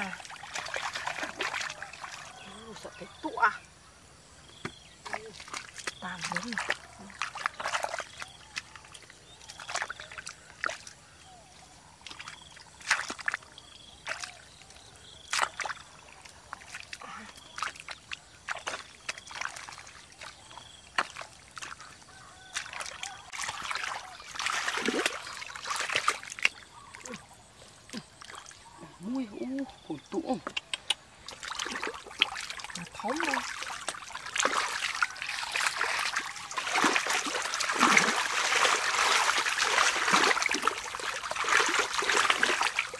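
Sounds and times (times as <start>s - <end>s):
hands splashing in mud: 0.0s - 2.3s, 5.1s - 10.9s, 12.1s - 13.4s, 15.2s - 15.9s, 22.5s - 27.2s, 30.8s - 42.9s.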